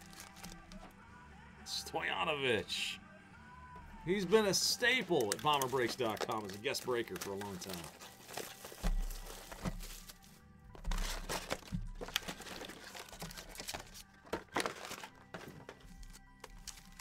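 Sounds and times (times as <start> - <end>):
foil wrappers crinkling and tearing: 0.0 - 0.9, 4.8 - 17.0
background music: 0.0 - 17.0.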